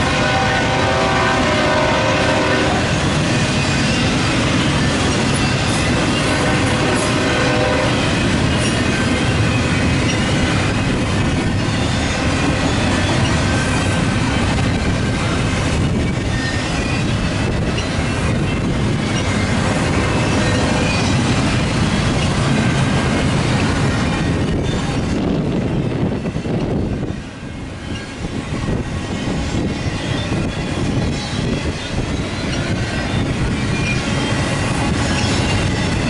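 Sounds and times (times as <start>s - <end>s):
train wheels rumbling on rails: 0.0s - 36.0s.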